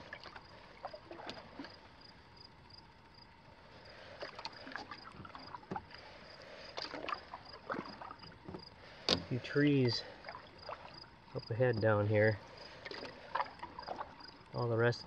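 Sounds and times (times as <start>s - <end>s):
paddle strokes in water: 0.0s - 15.0s.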